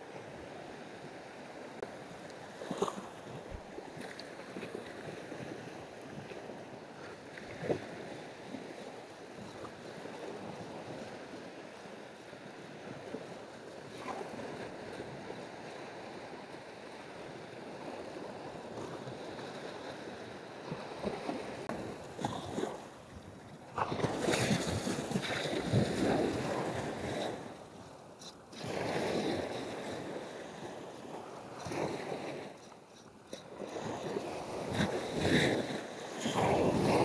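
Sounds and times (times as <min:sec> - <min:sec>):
waves washing up sandy beach: 0:00.0 - 0:37.0
wind on microphone: 0:17.2 - 0:27.6, 0:33.4 - 0:37.0.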